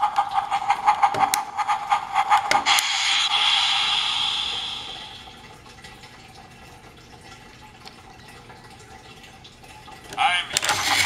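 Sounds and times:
toy train motor whirring: 10.6 - 11.0.

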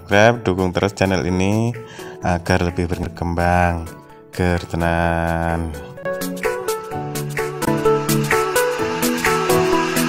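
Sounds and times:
melody over steady beat: 6.0 - 10.0.

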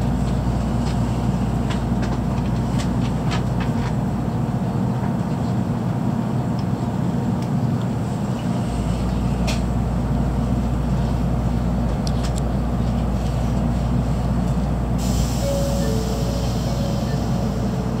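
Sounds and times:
low train interior hum: 0.0 - 18.0
short tones: 15.3 - 18.0.

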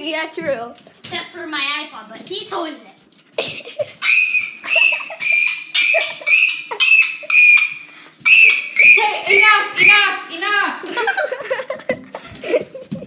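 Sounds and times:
child shrieking: 4.0 - 10.1.

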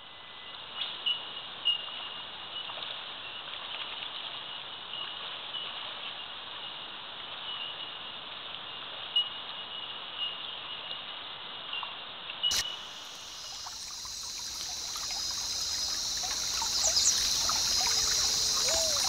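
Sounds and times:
creek flowing: 11.4 - 19.0.

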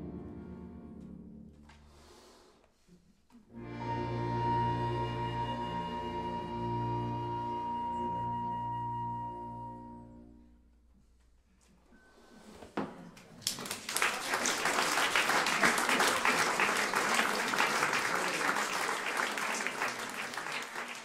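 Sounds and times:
audience applause: 13.4 - 21.0.

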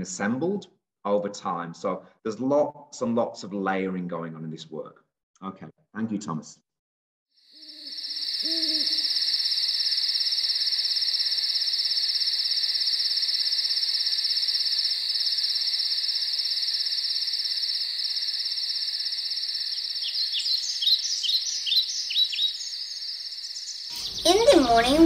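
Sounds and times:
insect chorus trilling: 7.4 - 25.0
birds chirping: 19.7 - 25.0.

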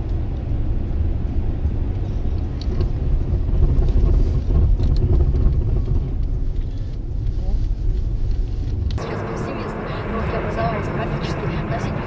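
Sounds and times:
car interior driving rumble: 0.0 - 12.0.

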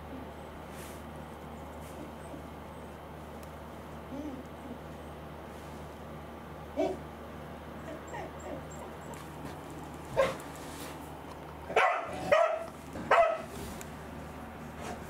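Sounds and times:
dog yipping: 10.2 - 10.4, 11.7 - 13.5.

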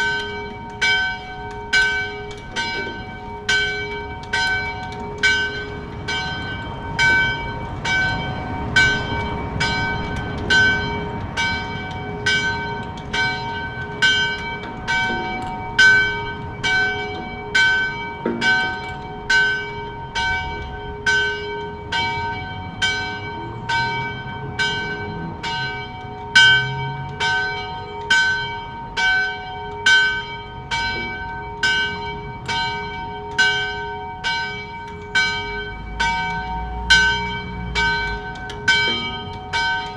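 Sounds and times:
church bell ringing: 0.0 - 39.9.

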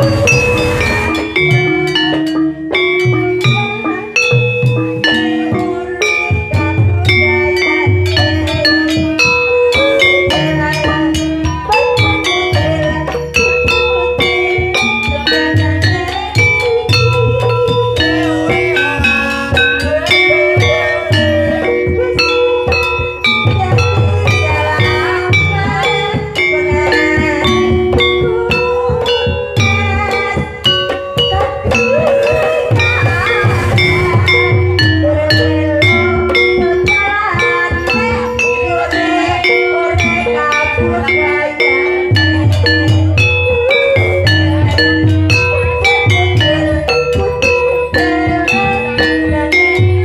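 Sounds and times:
low drum: 0.0 - 2.1, 31.4 - 36.8
ringing struck gong notes: 0.0 - 2.4, 31.7 - 36.1
drum beats: 0.0 - 50.0
gamelan metal keys and gongs: 0.0 - 50.0.

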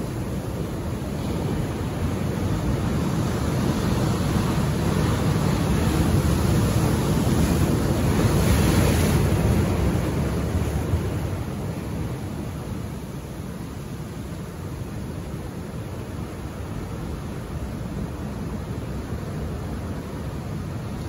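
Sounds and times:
ocean surf breaking over rocks: 0.0 - 21.0.

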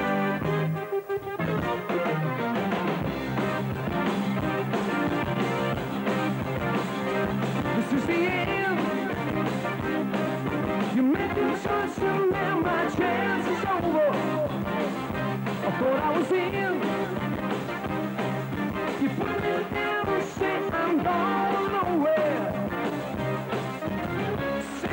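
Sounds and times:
drums: 0.0 - 24.9
guitar: 0.0 - 24.9
keyboards: 0.0 - 24.9
person singing: 7.7 - 10.0, 10.7 - 15.0, 15.6 - 17.4, 19.0 - 22.9, 24.4 - 24.9.

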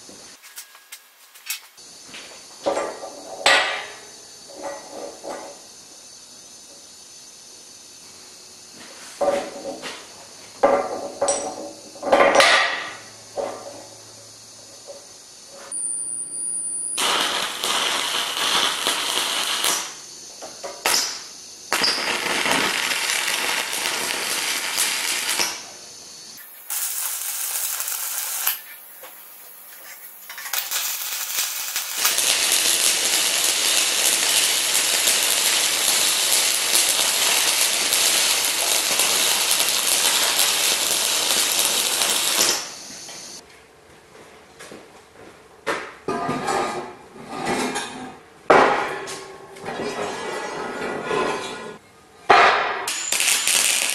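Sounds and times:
arc welding crackling hiss: 0.0 - 2.5, 15.4 - 43.4, 52.9 - 53.9.

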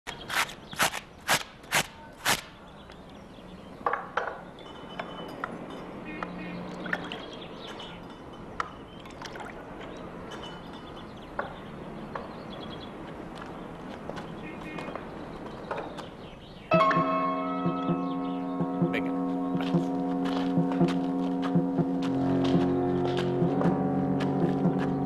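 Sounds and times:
glassware clinking: 4.2 - 6.1, 10.3 - 11.2
liquid pouring: 8.9 - 10.0.

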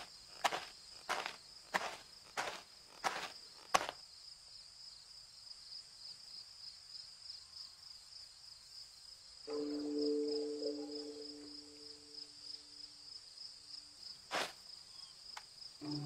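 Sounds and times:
cartoon footsteps: 0.0 - 4.0
crickets chirping: 0.0 - 16.0
low two-note tone: 9.5 - 12.2.

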